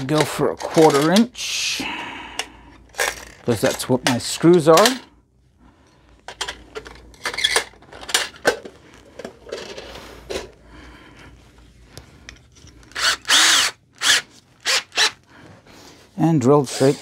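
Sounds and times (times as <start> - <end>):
drill bits clinking in metal case: 0.0 - 1.4, 6.3 - 10.5
cordless drill spinning: 12.8 - 15.3.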